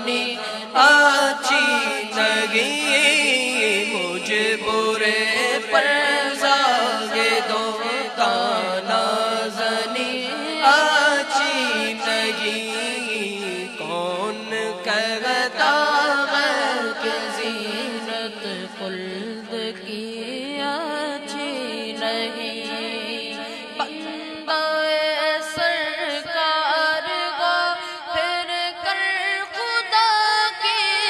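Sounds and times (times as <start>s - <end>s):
boys chanting into microphones: 0.0s - 31.0s.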